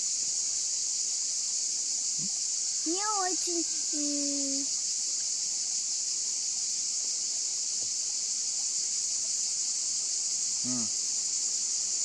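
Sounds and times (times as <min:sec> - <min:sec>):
insects buzzing: 0:00.0 - 0:12.0.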